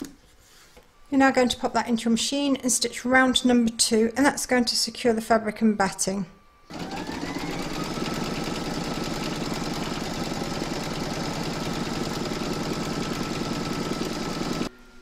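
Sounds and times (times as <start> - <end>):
embroidery machine stitching: 6.7 - 14.7
motor whine: 6.7 - 15.0.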